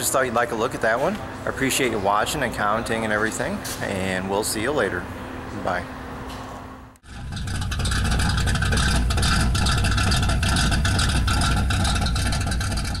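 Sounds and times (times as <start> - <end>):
car engine running: 7.0 - 13.0.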